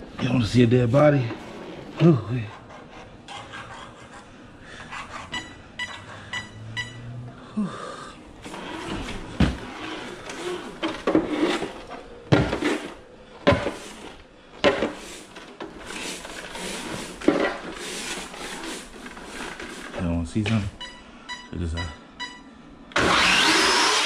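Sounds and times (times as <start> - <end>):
rustling handling noise: 8.4 - 20.8.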